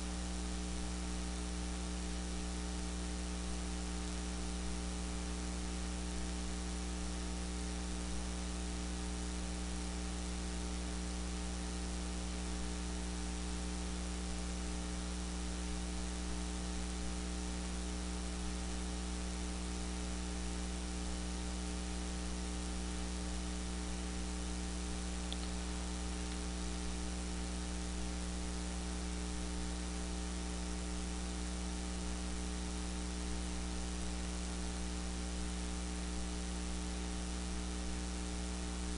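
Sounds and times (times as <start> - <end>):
electrical mains hum: 0.0 - 38.9.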